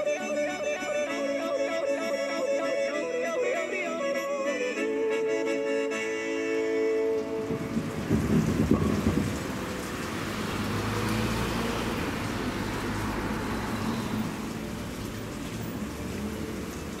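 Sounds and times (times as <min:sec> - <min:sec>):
car driving past: 0:07.4 - 0:16.9.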